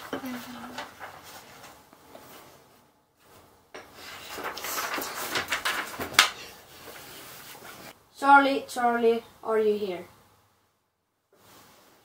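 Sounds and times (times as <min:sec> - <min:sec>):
paper rustling and scraping: 0:00.0 - 0:02.5, 0:04.0 - 0:07.9.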